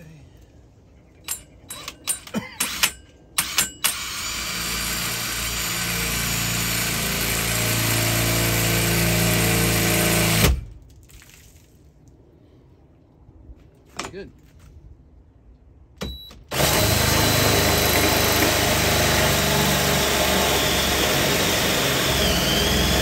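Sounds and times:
sharp clicks of saw on metal: 1.3 - 5.6
hole saw grinding through metal: 16.5 - 23.0.

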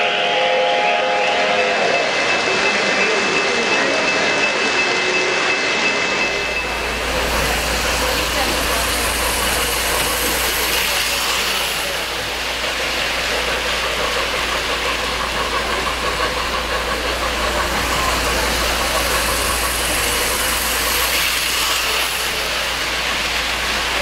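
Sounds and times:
model train wheels rumbling: 5.8 - 24.0.

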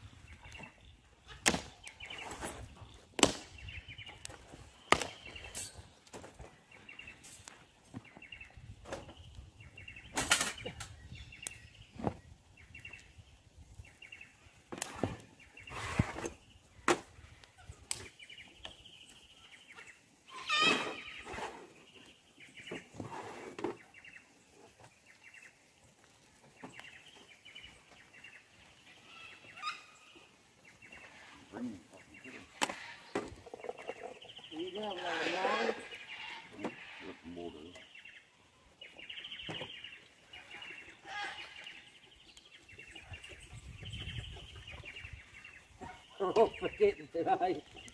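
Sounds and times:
wood fire crackling: 0.0 - 20.3, 21.2 - 36.1, 37.2 - 47.9
faint birds chirping: 0.0 - 47.9
sticks and grill grate clattering: 4.2 - 6.6, 10.0 - 11.0.

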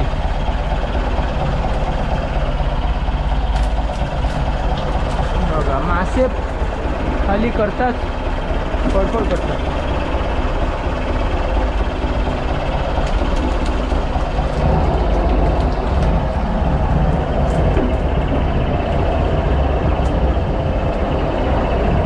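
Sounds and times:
boat engine running: 0.0 - 22.0.

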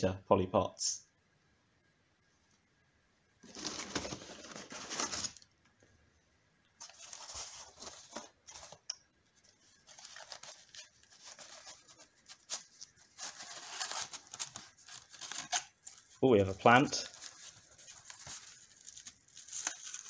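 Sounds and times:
cardboard and plastic rustling: 3.4 - 5.5, 6.8 - 20.0.

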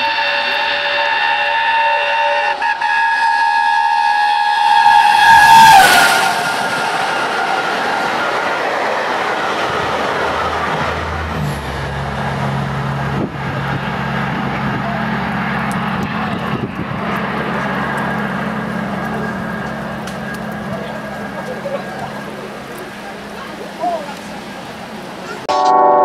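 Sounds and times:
steam locomotive whistle: 0.0 - 8.4
train carriages rushing by: 0.0 - 25.5.

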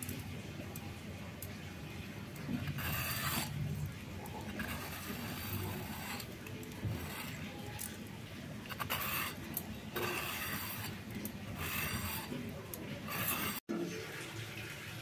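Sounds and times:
peeler scraping gourd skin: 2.4 - 13.6.

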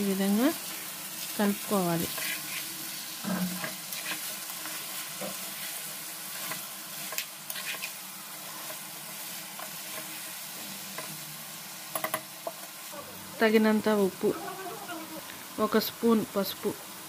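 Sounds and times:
food frying in oil: 0.0 - 17.0
spatula scraping and clinking on pan: 2.1 - 5.8, 6.4 - 8.8.

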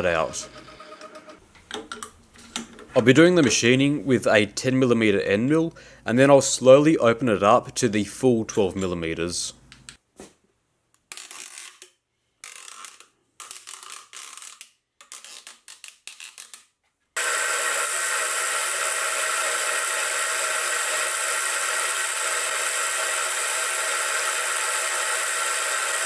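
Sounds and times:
milling machine cutting steel: 17.2 - 26.0.

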